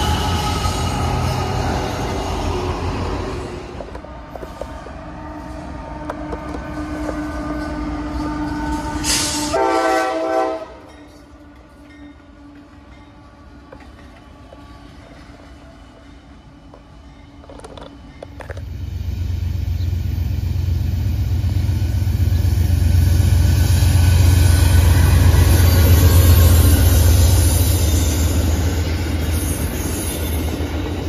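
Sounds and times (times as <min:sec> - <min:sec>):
train wheels rumbling: 0:00.0 - 0:31.0
train horn blast: 0:05.2 - 0:11.0.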